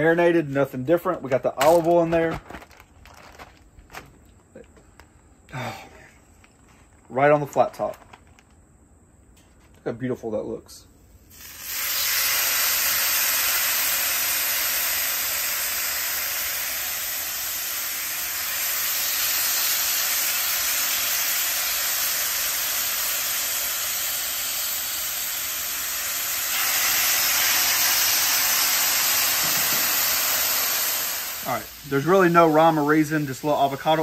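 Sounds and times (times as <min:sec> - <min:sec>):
meat sizzling on griddle: 0:11.3 - 0:34.0.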